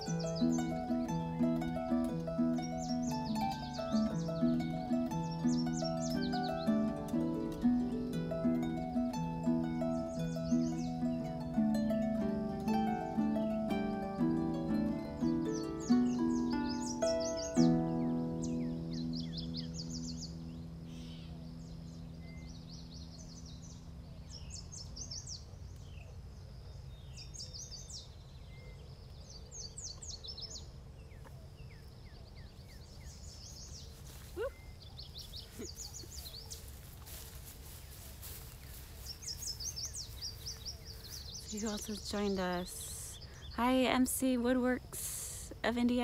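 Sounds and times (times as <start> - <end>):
harp notes ringing: 0.0 - 23.9
birds chirping: 0.0 - 46.0
footsteps through grass: 33.4 - 42.3.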